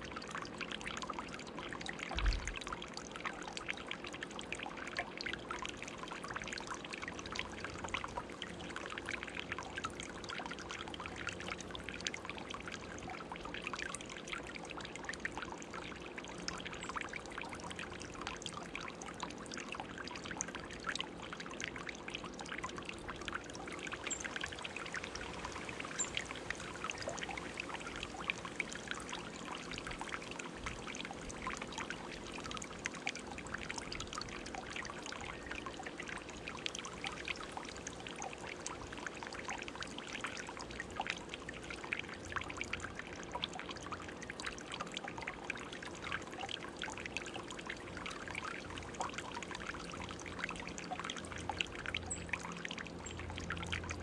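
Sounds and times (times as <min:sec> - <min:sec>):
fountain water trickling: 0:00.0 - 0:54.0.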